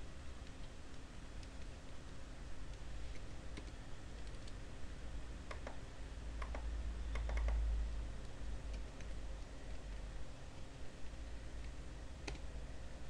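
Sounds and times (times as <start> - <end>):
keyboard key clicks: 6.4 - 7.6.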